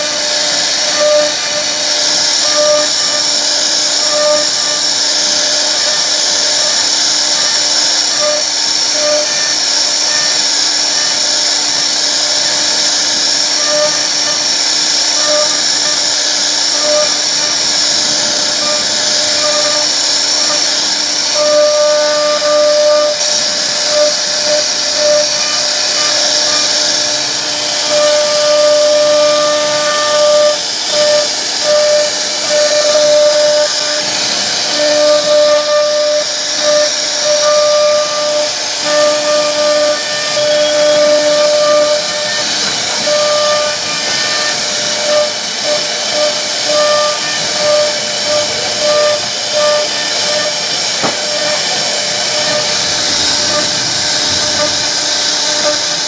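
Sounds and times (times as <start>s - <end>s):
router spindle whining: 0.0s - 56.0s
lower tone in spurts: 40.0s - 56.0s.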